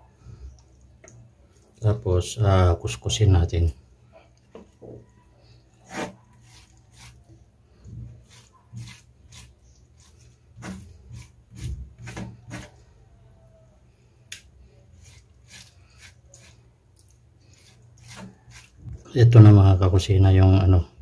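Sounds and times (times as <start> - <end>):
knife scraping on cutting board: 5.8 - 7.2, 8.2 - 12.8, 15.0 - 16.6, 17.5 - 18.8.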